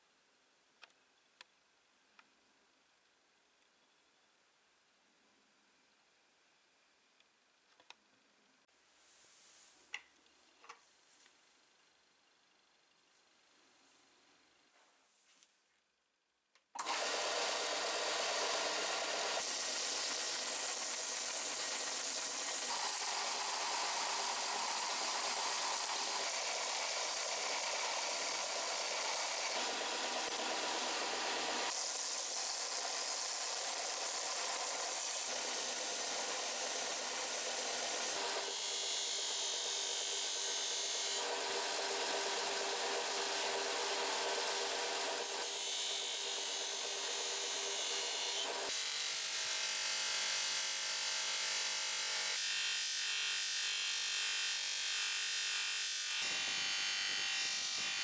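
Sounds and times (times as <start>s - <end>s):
belt and disc sander running: 16.8s - 48.8s.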